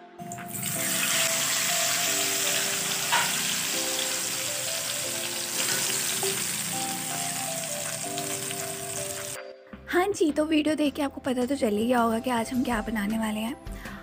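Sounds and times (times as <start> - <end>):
hot oil sizzling: 0.3 - 9.4.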